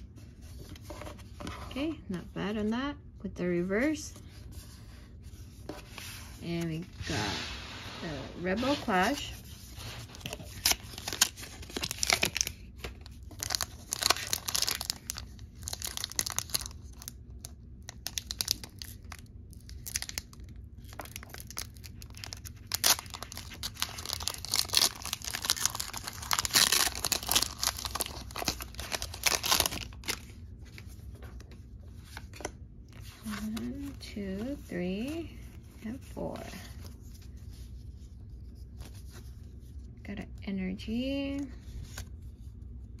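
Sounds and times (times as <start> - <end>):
foil wrapper tearing and crinkling: 10.1 - 30.2.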